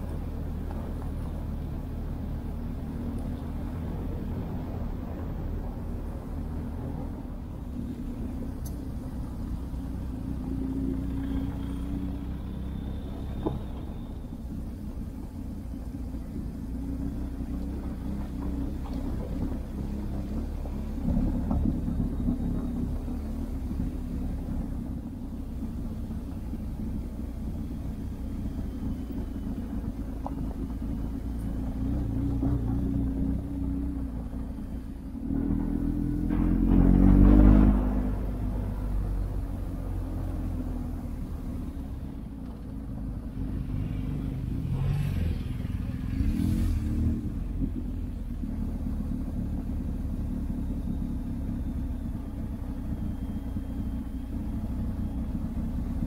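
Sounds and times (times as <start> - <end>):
motorcycle engine revving: 35.2 - 41.9, 43.2 - 56.0.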